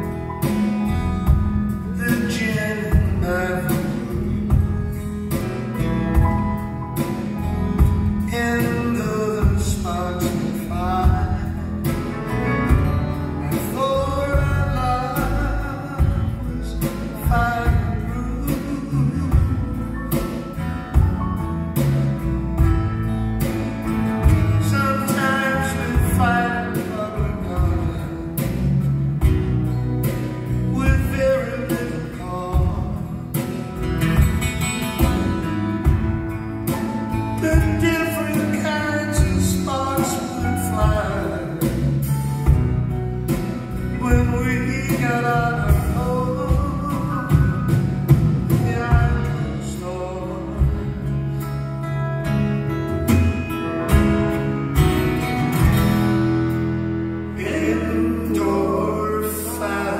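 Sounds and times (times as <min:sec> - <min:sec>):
live band playing country song: 0:00.0 - 0:59.9
strummed acoustic guitars: 0:00.0 - 0:59.9
man singing: 0:01.2 - 0:06.2, 0:07.7 - 0:21.0, 0:24.2 - 0:29.5, 0:30.1 - 0:33.7, 0:36.6 - 0:52.0, 0:57.2 - 0:59.9.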